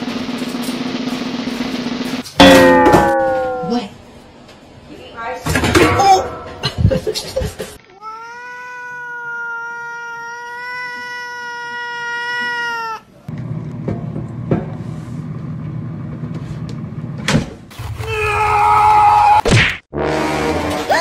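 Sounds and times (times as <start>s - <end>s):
cat yowling: 8.0s - 13.1s.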